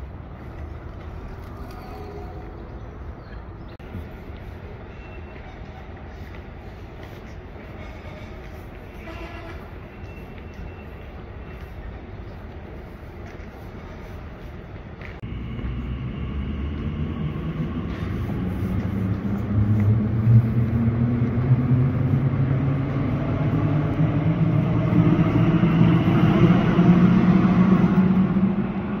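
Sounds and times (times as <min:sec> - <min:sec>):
train rumble with motor hum: 0:11.1 - 0:29.0.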